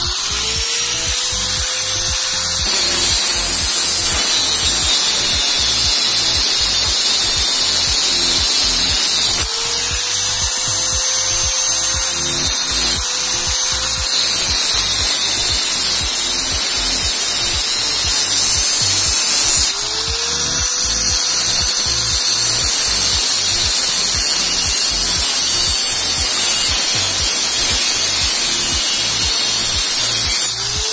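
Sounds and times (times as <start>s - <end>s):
background music with beat: 0.0s - 5.1s, 5.8s - 24.3s
angle grinder cutting metal: 0.0s - 30.9s.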